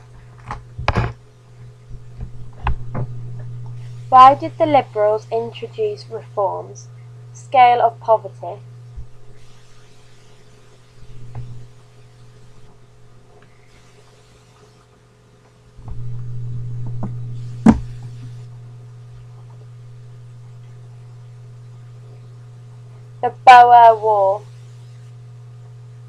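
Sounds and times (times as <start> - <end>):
low hum with faint hiss: 0.0 - 26.0
sharp knock: 17.6 - 18.0.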